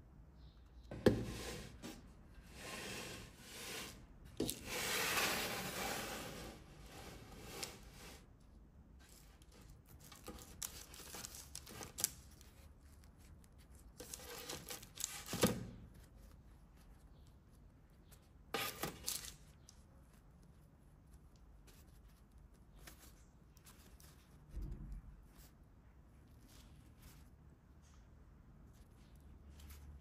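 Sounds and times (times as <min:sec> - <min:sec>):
parchment paper crinkling: 0:09.0 - 0:28.0.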